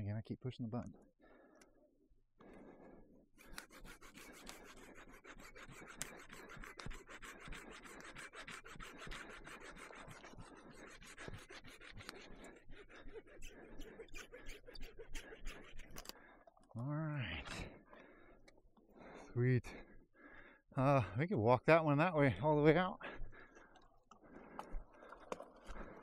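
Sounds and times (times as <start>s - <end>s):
handsaw cutting through wood: 3.4s - 16.2s.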